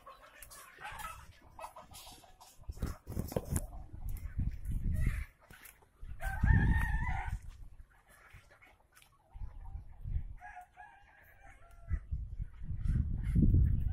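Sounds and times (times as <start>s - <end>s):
wind rumble on microphone: 2.6s - 5.4s, 6.0s - 7.9s, 9.3s - 10.7s, 11.3s - 13.9s
rooster crowing: 6.2s - 7.4s.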